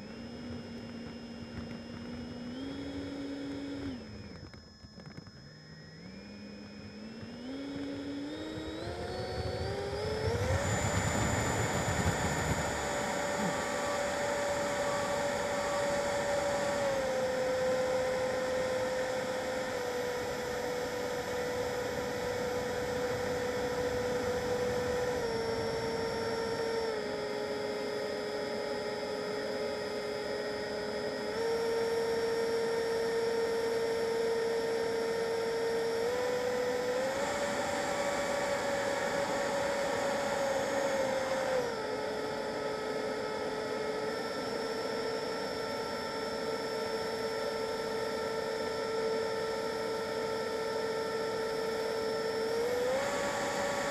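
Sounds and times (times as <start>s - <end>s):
electric ducted fan whine: 0.0s - 53.9s.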